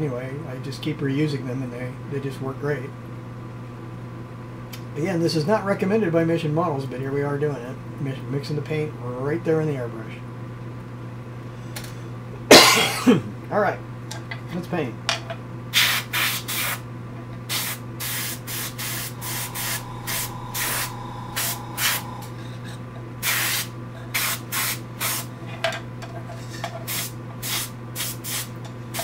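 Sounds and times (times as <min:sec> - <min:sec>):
steady low hum: 0:00.0 - 0:29.0
airbrush hissing bursts: 0:15.8 - 0:16.8, 0:17.5 - 0:22.4, 0:23.2 - 0:25.3, 0:26.9 - 0:29.0.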